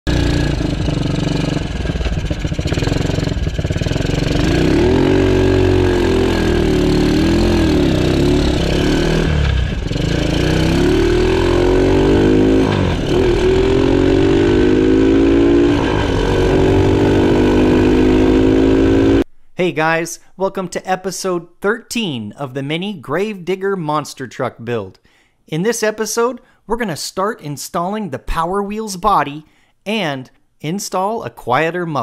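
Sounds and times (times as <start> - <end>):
engine speeding up: 0.1 - 19.2.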